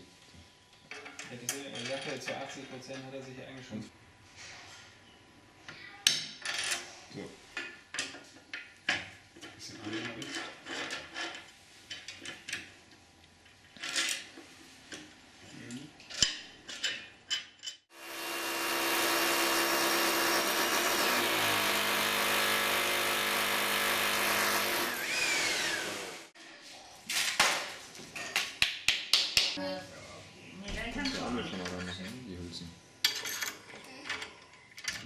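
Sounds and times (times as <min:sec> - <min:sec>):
electric drill boring into wall: 0:17.9 - 0:26.4.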